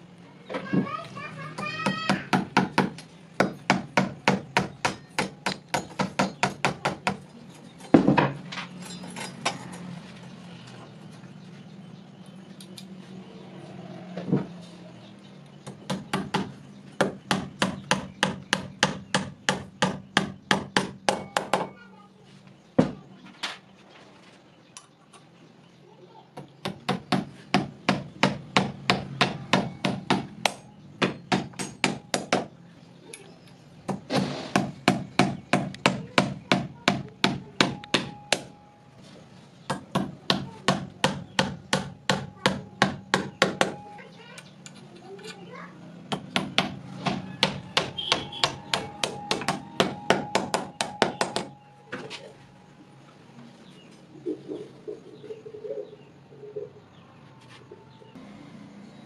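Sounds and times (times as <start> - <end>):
hammer tapping nails: 1.6 - 7.2, 33.9 - 38.6, 39.7 - 43.8, 46.1 - 51.6.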